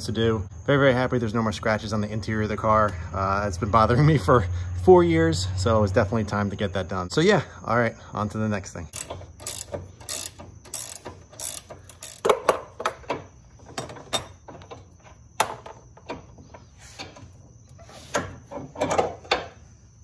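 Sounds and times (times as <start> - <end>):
ratcheting wrench clicking: 8.9 - 14.9
metal parts clinking: 8.9 - 15.0.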